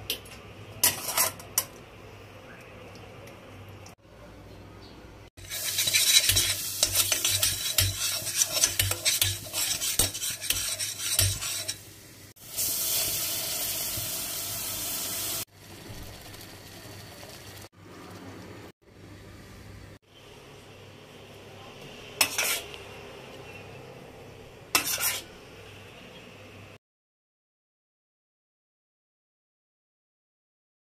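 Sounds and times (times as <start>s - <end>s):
spoon scraping metal pot: 0.8s - 1.8s, 5.4s - 11.9s, 22.2s - 22.8s, 24.7s - 25.4s
fat sizzling: 5.4s - 18.7s, 22.2s - 22.8s, 24.7s - 25.3s.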